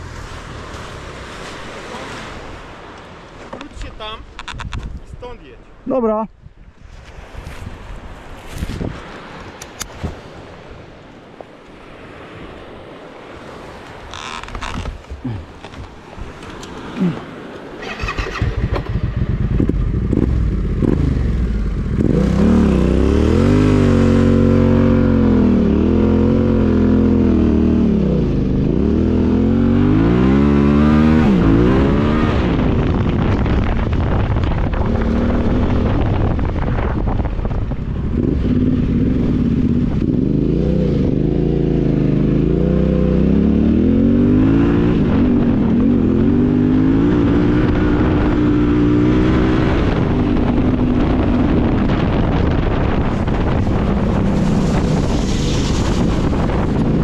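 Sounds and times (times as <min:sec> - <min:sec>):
motorcycle engine revving: 0:17.8 - 0:36.3, 0:37.9 - 0:57.0.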